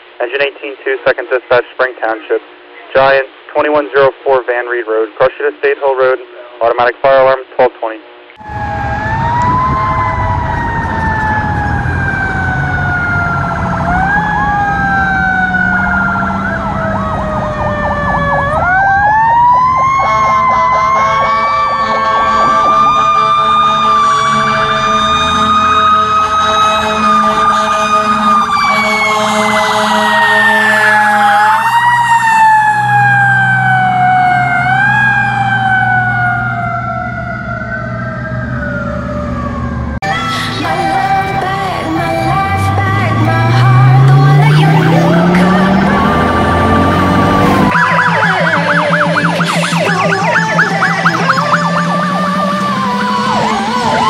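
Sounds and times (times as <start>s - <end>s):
electronic siren yelping: 8.4s - 54.0s
mechanical siren wailing: 8.4s - 54.0s
diesel engine running: 40.8s - 54.0s.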